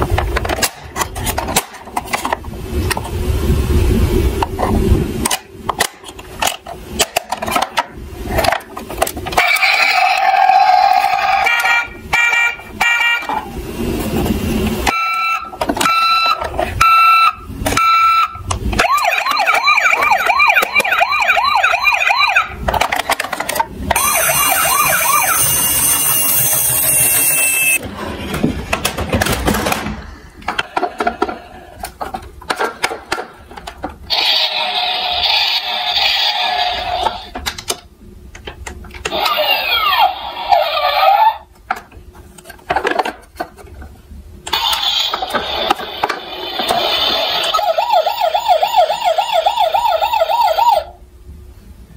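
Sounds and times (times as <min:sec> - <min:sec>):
toy warbling siren: 0:09.4 - 0:13.3, 0:14.9 - 0:22.6, 0:24.0 - 0:27.8, 0:39.1 - 0:41.4, 0:47.3 - 0:51.0
toy beeping tones: 0:14.9 - 0:18.4, 0:24.0 - 0:27.8.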